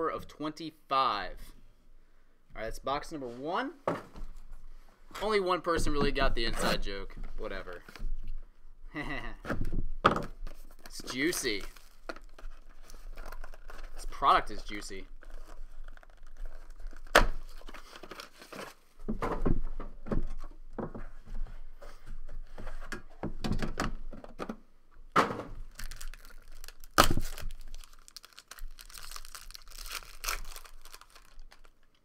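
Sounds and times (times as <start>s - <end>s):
plastic wrapper crinkling and tearing: 10.7s - 18.8s, 25.7s - 32.0s.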